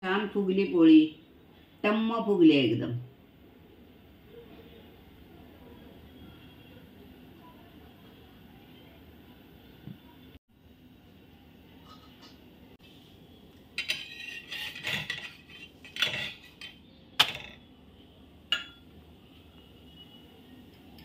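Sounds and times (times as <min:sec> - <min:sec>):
metal spatula scraping a griddle: 0:11.8 - 0:12.4, 0:13.8 - 0:16.8
metal spatula clinking: 0:13.8 - 0:17.6, 0:18.5 - 0:18.9.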